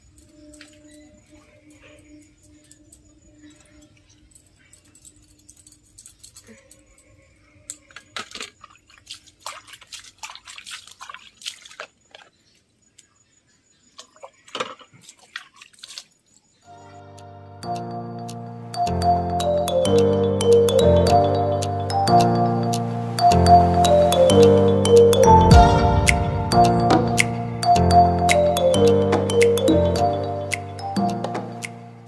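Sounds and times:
water splashing and pouring: 8.2s - 12.3s, 14.0s - 16.2s, 21.2s - 31.8s.

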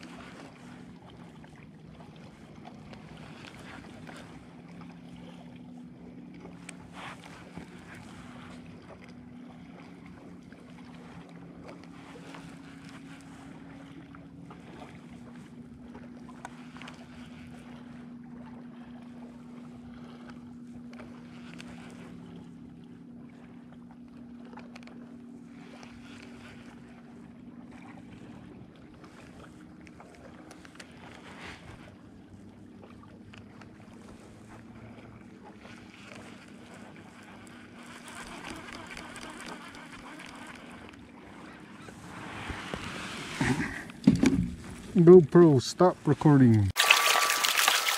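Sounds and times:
distant motorboat engine hum: 0.0s - 46.8s
water lapping around kayak: 0.0s - 47.9s
wind: 0.0s - 47.9s
faint clicks: 38.2s - 41.0s.

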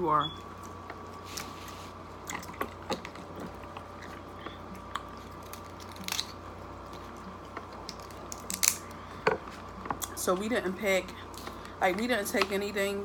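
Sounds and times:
faint steady hum: 0.0s - 13.0s
chewing close up: 0.6s - 8.9s
shells cracking and crunching: 2.2s - 10.1s.

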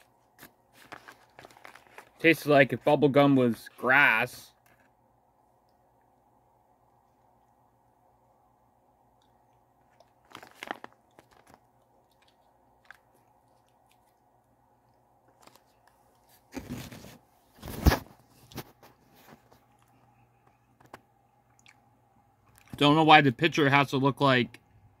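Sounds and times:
rustling and crunching handling: 0.0s - 3.8s, 9.6s - 21.0s.

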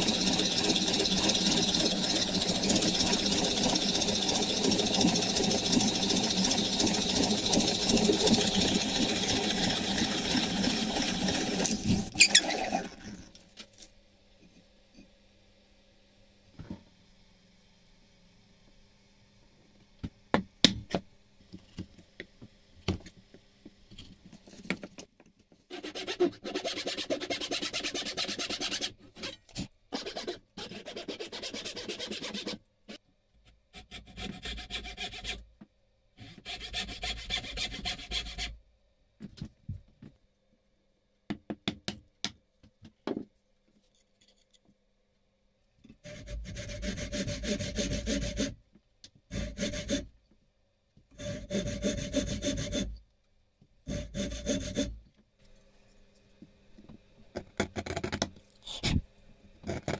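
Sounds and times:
backsaw cutting wood: 0.0s - 10.3s, 46.1s - 48.5s, 49.3s - 50.0s, 51.2s - 52.9s, 53.9s - 54.9s.

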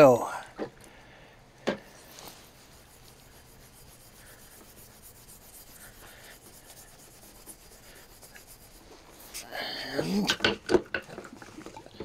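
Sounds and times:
steel wool scrubbing pipe: 1.8s - 10.4s.

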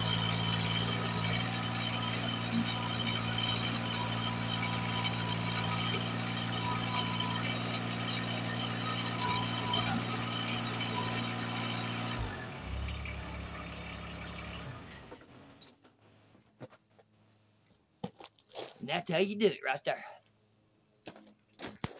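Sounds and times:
tractor engine running: 0.0s - 15.7s.

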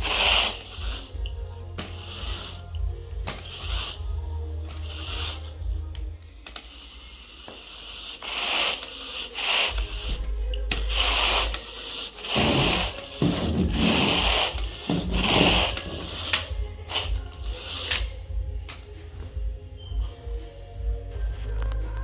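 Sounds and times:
carpet groomer brushing carpet: 0.0s - 5.6s, 6.6s - 10.2s, 10.8s - 17.9s.

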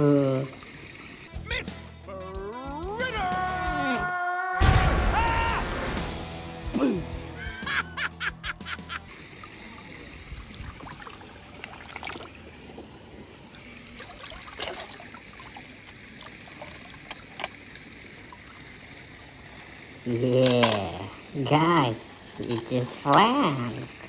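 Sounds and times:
running water trickling: 0.0s - 1.4s, 9.0s - 24.0s.

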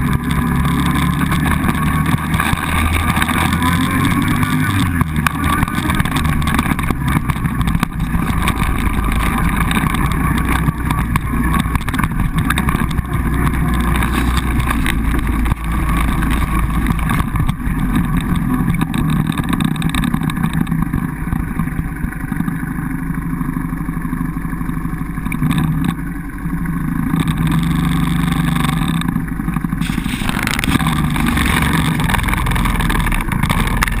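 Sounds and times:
quad bike engine running: 0.0s - 34.0s.

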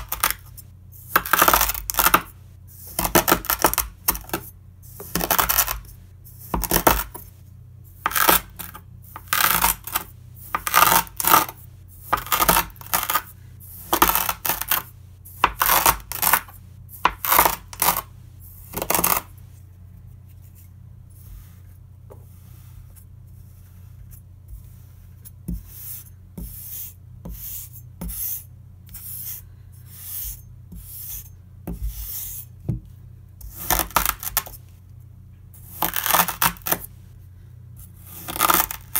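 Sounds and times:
faint low hum: 0.0s - 38.9s.

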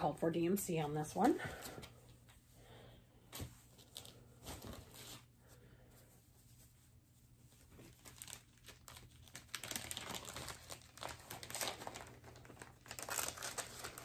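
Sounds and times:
crinkling of stiff wrapping: 3.3s - 14.0s.

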